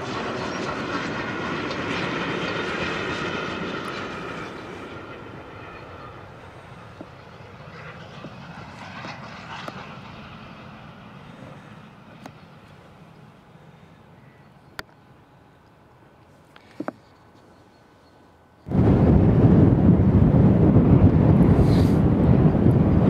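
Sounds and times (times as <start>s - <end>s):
steam locomotive exhaust: 21.3s - 22.9s.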